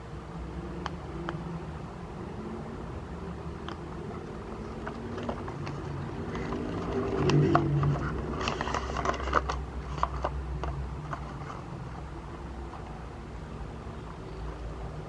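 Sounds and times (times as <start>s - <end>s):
card box crinkling and clicking: 4.5s - 11.8s.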